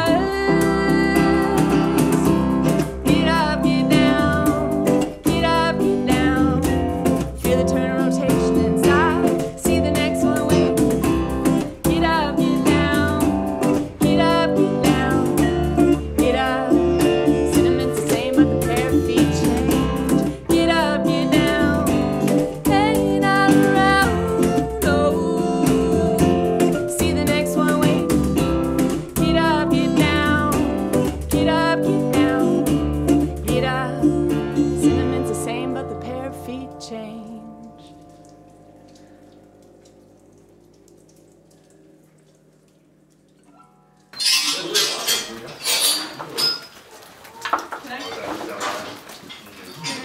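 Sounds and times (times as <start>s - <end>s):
woman singing: 0.0s - 11.0s, 11.8s - 38.0s
upright bass: 0.0s - 37.6s
strummed acoustic guitar: 0.0s - 37.8s.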